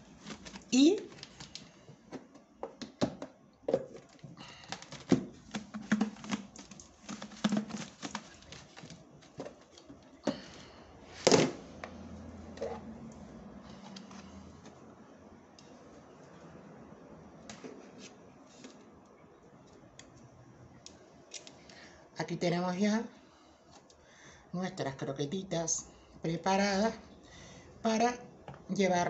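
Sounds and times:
croquettes rattling in plastic container: 4.8s - 9.5s.

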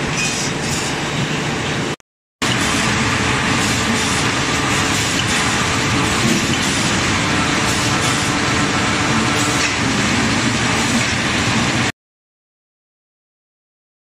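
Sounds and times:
machine line running: 2.4s - 11.9s.

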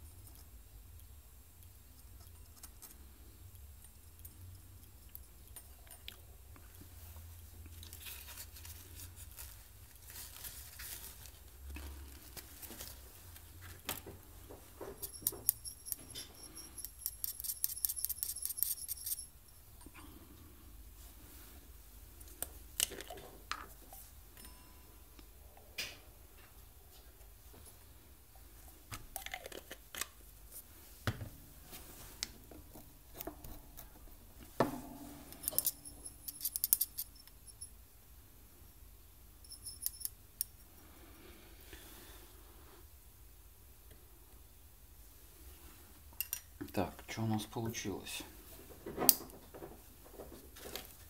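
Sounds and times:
paintbrush stirring in metal cup: 15.0s - 19.7s, 35.3s - 37.7s
light metallic clinks: 15.0s - 20.0s, 34.7s - 37.8s, 39.4s - 40.6s.

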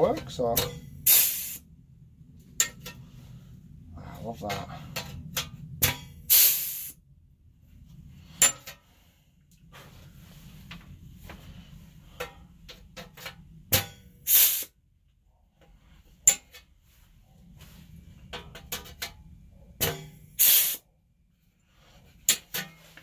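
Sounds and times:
air punch clacking: 0.6s - 1.6s, 5.8s - 7.0s, 13.7s - 14.7s, 19.8s - 20.8s
exhaust air hissing: 0.9s - 1.7s, 6.2s - 7.0s, 14.2s - 14.8s, 20.3s - 20.9s.

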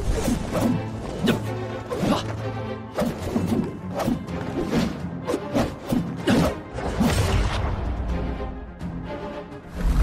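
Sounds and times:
dramatic background music: 0.0s - 10.0s.

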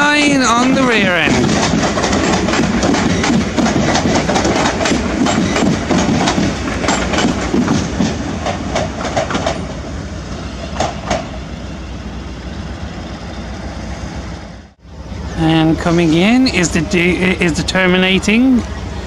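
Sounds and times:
train rumble: 0.0s - 19.0s
train wheels clicking over rail joints: 0.2s - 11.6s.

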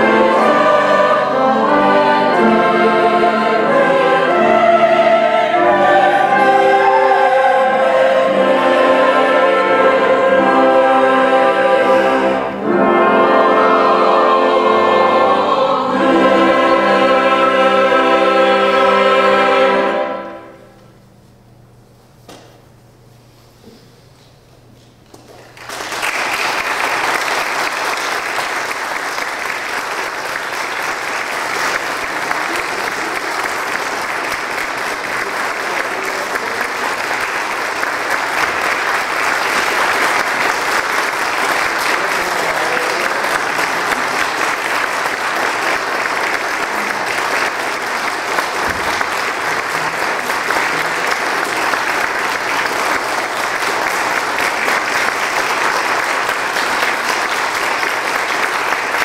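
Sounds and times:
audience applauding: 25.2s - 59.0s.

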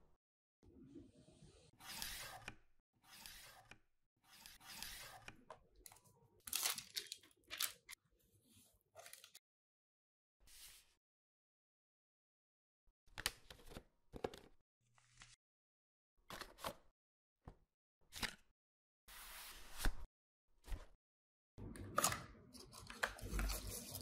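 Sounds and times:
cardboard and plastic tearing and crinkling: 6.5s - 7.9s.

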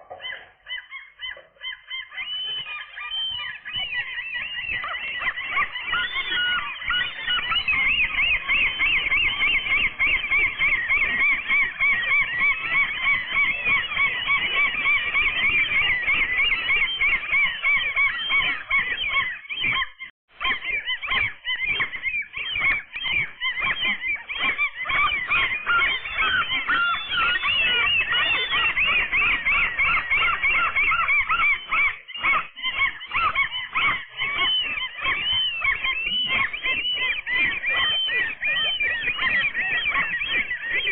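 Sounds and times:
gulls calling: 0.0s - 40.9s.

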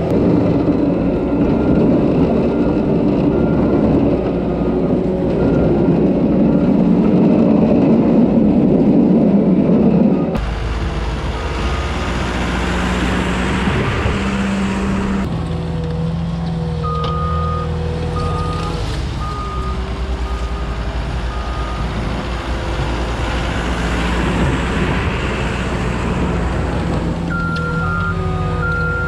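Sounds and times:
diesel engine running under load: 0.0s - 29.0s
reversing alarm beeps: 27.3s - 29.0s.

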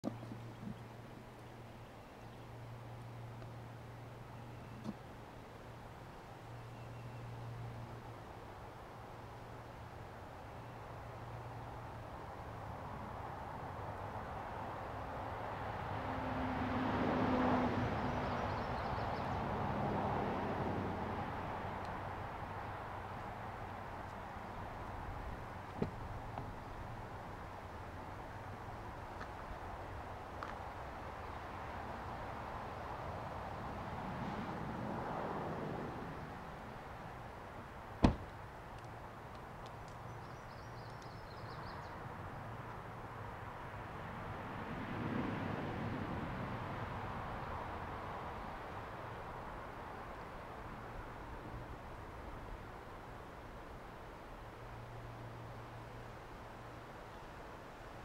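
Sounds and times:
sharp knock: 38.0s - 38.3s.

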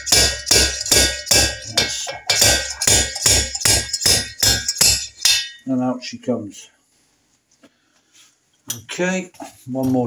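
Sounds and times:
slide hammer clanging: 0.0s - 5.7s.

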